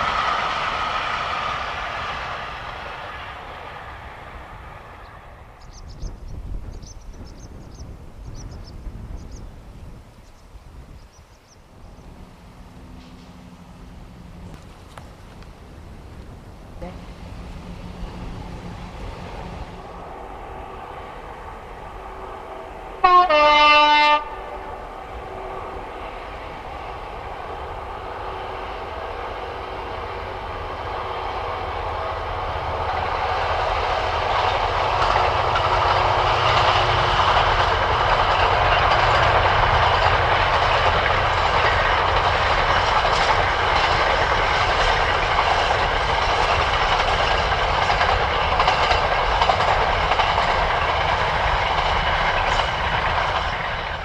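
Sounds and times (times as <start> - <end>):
train rumbling past: 0.0 - 54.0
locomotive horn blast: 19.8 - 25.9
train wheel clicks: 32.7 - 54.0.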